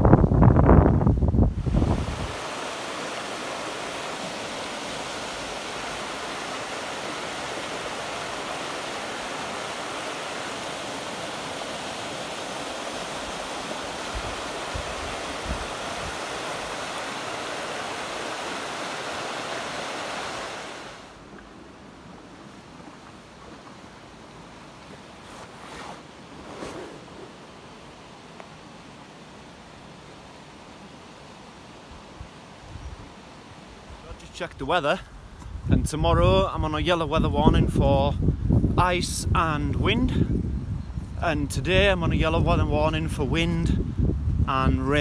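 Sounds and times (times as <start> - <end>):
wind bumps on microphone: 0.0 - 2.7, 35.2 - 45.0
river water rushing: 1.6 - 34.1.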